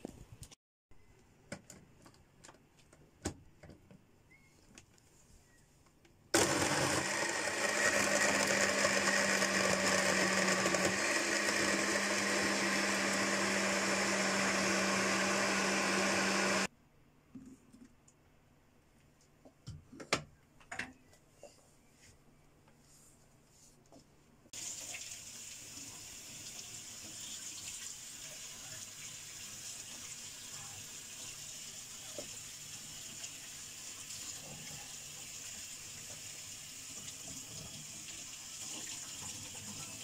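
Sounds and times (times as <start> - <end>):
blender motor running: 6.4 - 16.7.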